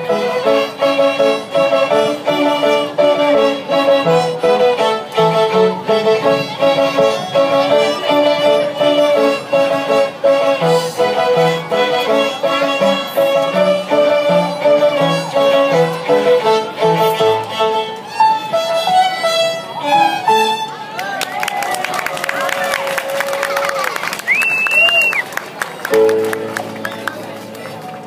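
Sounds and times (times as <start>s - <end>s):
violins playing in unison: 0.0s - 20.9s.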